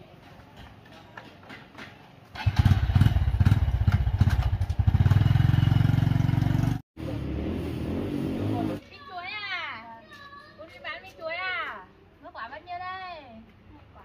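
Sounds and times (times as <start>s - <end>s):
small engine droning: 2.4s - 8.8s.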